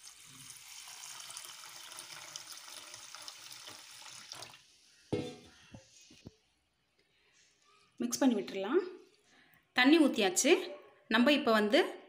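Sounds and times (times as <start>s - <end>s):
water pouring onto rice: 0.0s - 4.7s.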